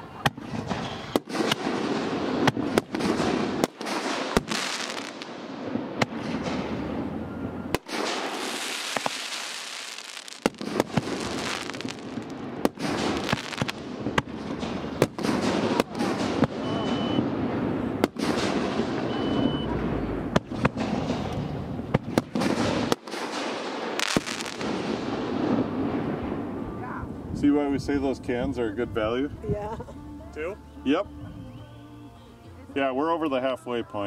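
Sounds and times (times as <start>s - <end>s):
firework bangs: 0.2s - 26.7s
firework crackling: 0.3s - 27.0s.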